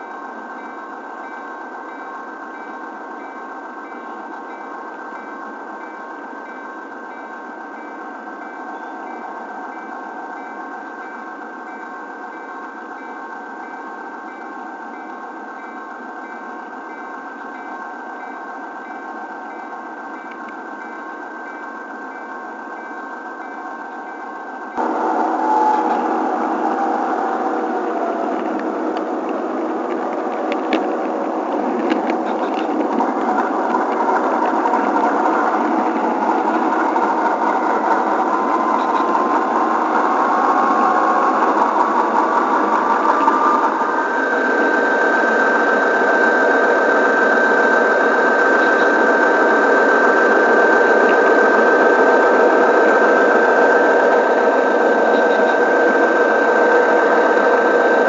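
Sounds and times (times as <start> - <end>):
model train whirring on track: 0.0 - 58.0
rising motor whine: 24.8 - 58.0.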